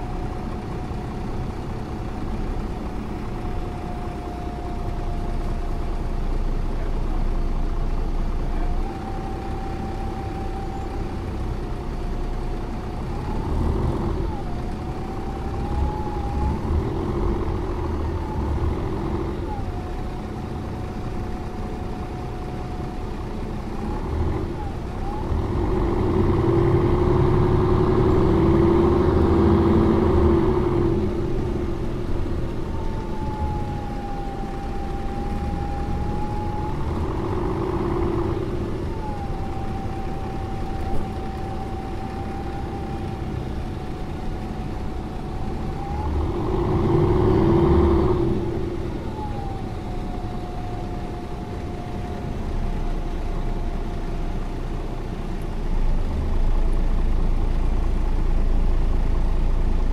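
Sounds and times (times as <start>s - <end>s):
bus engine pulling: 0.0s - 59.9s
thin falling whine: 8.5s - 54.0s.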